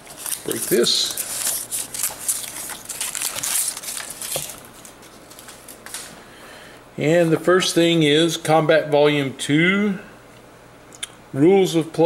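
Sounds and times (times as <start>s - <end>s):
paper tearing and crinkling: 0.0s - 6.1s.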